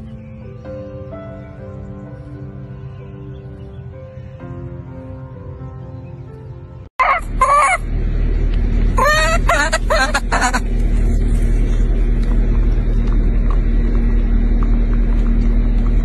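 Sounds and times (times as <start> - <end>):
baby monkey crying: 7.0 - 7.8, 9.0 - 10.7
steady low rumble: 7.0 - 16.0.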